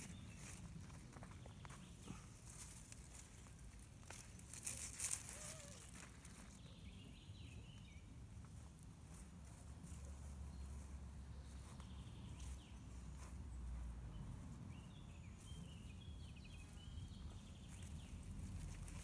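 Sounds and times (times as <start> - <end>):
plants rustling and clicking: 0.0 - 6.6
bird chirping: 5.1 - 8.2, 14.1 - 18.3.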